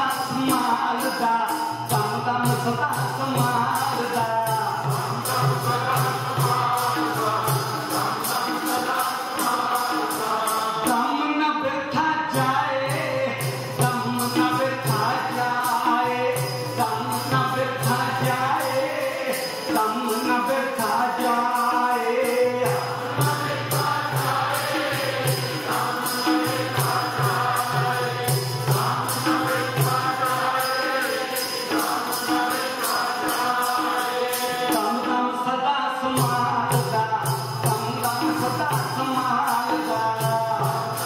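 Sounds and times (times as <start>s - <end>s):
steady percussion beat: 0.0s - 11.4s, 12.2s - 41.0s
congregation chanting: 3.4s - 11.1s, 12.9s - 35.3s.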